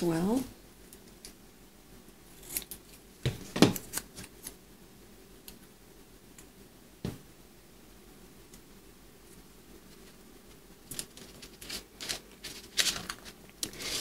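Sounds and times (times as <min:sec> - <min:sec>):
scissors snipping paper: 0:02.4 - 0:03.0.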